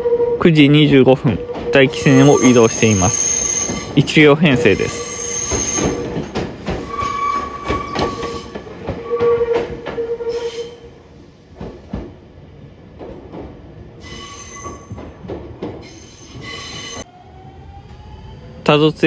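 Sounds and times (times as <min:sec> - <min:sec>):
wheel squeal: 0:01.5 - 0:04.0, 0:04.6 - 0:10.8, 0:14.0 - 0:15.0, 0:15.8 - 0:17.0
train wheels clicking over joints: 0:04.8 - 0:10.1, 0:11.5 - 0:12.2, 0:12.9 - 0:13.7, 0:14.4 - 0:17.0.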